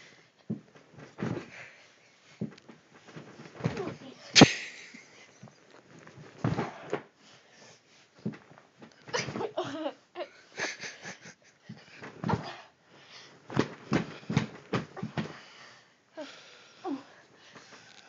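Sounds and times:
bedding rustling: 0.0s - 9.9s, 10.6s - 16.1s
body thumping onto bed: 0.5s - 1.6s, 2.4s - 4.5s, 6.1s - 7.1s, 11.7s - 12.6s, 13.5s - 15.4s
breathy laughter: 9.5s - 11.7s.

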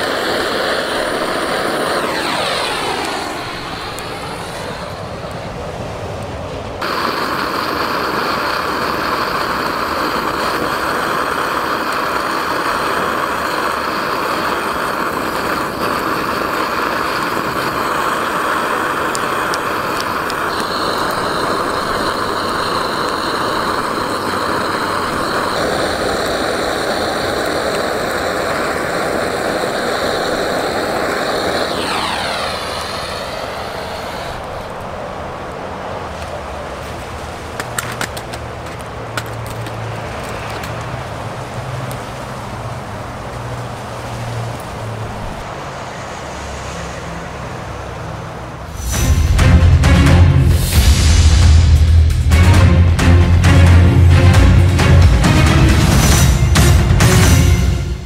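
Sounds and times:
blowtorch flame hissing: 0.0s - 58.0s.

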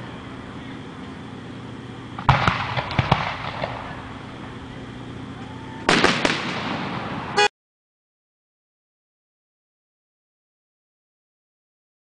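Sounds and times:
fireworks pops and crackles: 2.2s - 3.9s, 5.9s - 7.3s
fireworks bangs: 2.2s - 4.1s, 5.8s - 7.5s.

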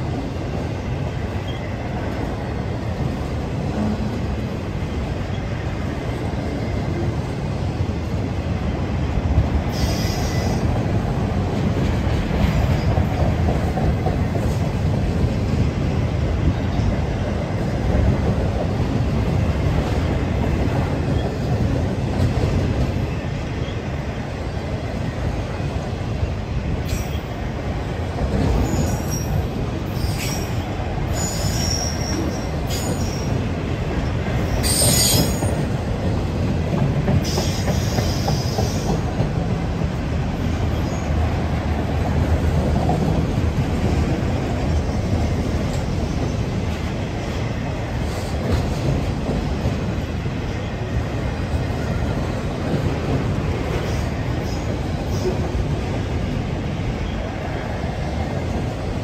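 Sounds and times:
freight train cars rumbling past: 0.0s - 59.0s
train wheels squealing: 1.4s - 1.7s, 9.7s - 10.7s, 26.8s - 27.4s, 28.5s - 33.4s, 34.4s - 35.7s, 37.2s - 39.0s, 40.7s - 41.2s, 53.8s - 55.4s.

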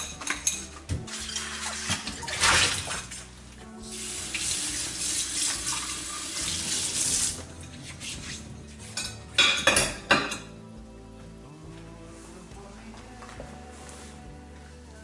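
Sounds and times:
tap water running into sink: 4.2s - 7.5s
glassware clink: 9.0s - 10.5s.

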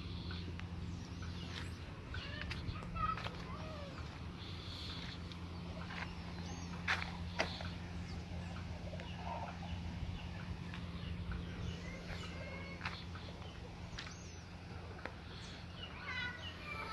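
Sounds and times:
birds calling: 0.0s - 16.9s
steady low hum: 0.0s - 16.9s.

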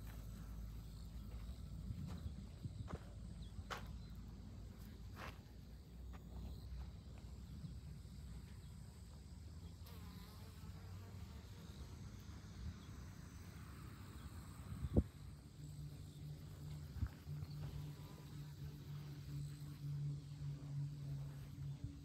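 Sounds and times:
flying insect buzzing: 9.0s - 22.0s.

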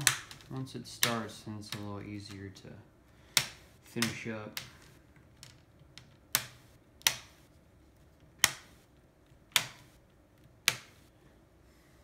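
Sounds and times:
plastic clips snapping: 0.0s - 2.4s, 5.4s - 7.4s, 8.3s - 8.8s, 9.5s - 11.1s.

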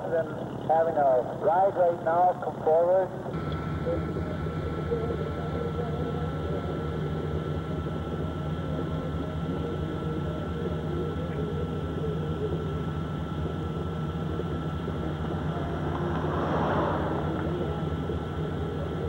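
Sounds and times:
vehicle engine drone: 0.0s - 19.0s.

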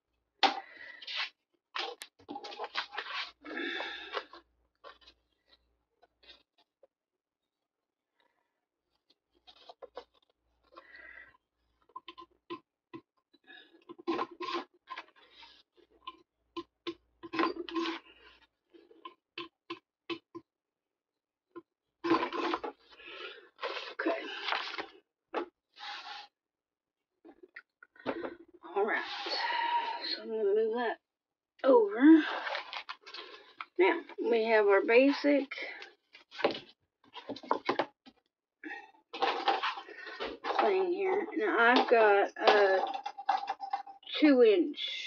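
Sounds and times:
paper rustling and scraping: 2.4s - 3.4s, 25.8s - 26.3s.

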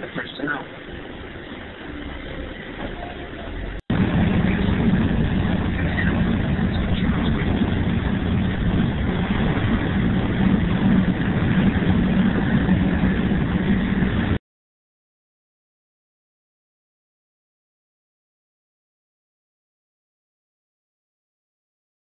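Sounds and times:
bus engine and road rumble: 0.0s - 14.4s.

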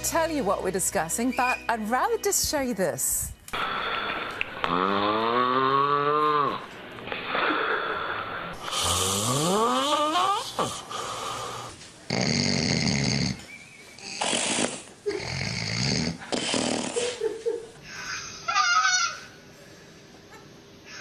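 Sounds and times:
people snoring: 3.5s - 17.2s.

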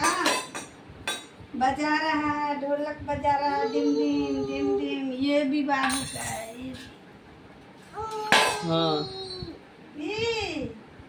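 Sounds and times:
metal bowls and plate clinking: 5.8s - 6.7s
sharp metal clang: 8.3s - 8.8s.

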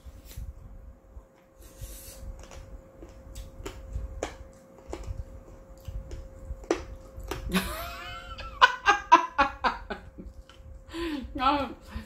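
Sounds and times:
faint steady hum: 0.0s - 12.0s
person chewing noodles: 1.6s - 7.5s.

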